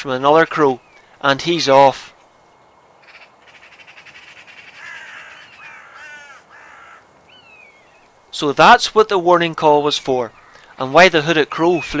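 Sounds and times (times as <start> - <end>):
crows cawing: 3.0 - 8.1, 10.3 - 10.9.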